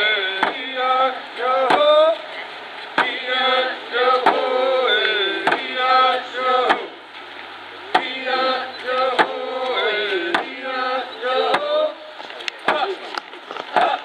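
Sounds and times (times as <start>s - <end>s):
voices singing chant-like song: 0.0s - 14.0s
steady drum beats: 2.9s - 6.9s, 9.0s - 10.7s.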